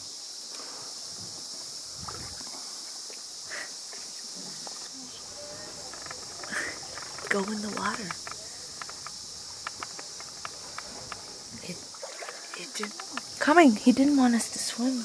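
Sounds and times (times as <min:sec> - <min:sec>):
high-pitched insect chorus: 0:00.0 - 0:15.0
faint knocks: 0:04.6 - 0:13.5.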